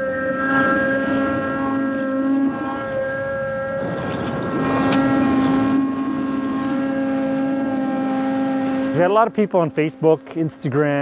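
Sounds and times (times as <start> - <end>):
snowmobile engine at high revs: 0.0 - 11.0.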